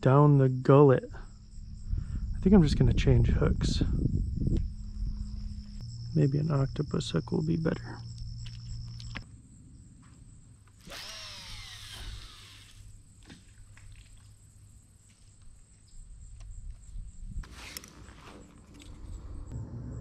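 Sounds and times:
fishing reel spool whirring: 10.8s - 12.9s.

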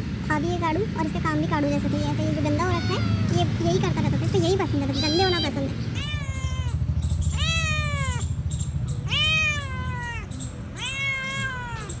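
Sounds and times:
cat meowing: 2.6s - 3.5s, 4.9s - 8.3s, 9.0s - 12.0s.

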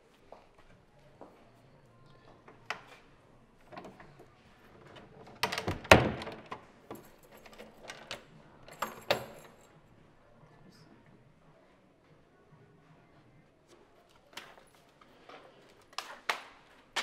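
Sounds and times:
door latch rattling: 5.2s - 6.5s
wooden door banging shut: 5.3s - 6.6s.

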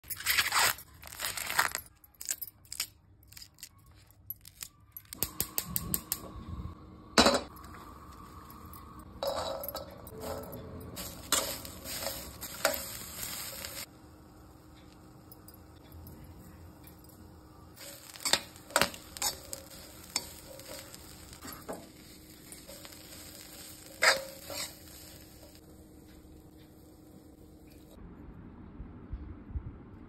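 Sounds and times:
corn husks ripping: 0.0s - 5.5s, 17.8s - 21.6s
corn kernels scraped in steel pan: 11.0s - 13.9s, 17.8s - 25.6s.

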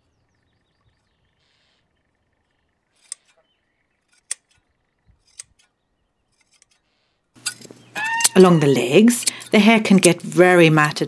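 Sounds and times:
shears snipping fur: 2.9s - 3.4s, 4.0s - 10.3s.

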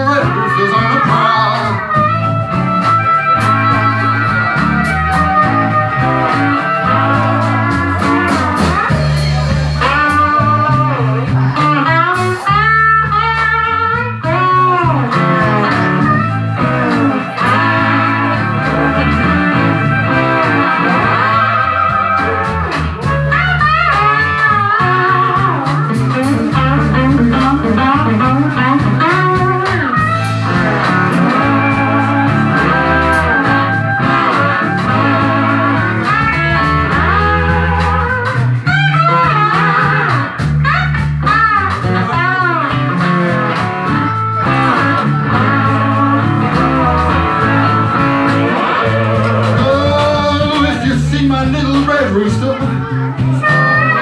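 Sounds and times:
bass line: 0.0s - 54.0s
drums: 0.0s - 54.0s
electric guitar lead lines: 0.0s - 54.0s.

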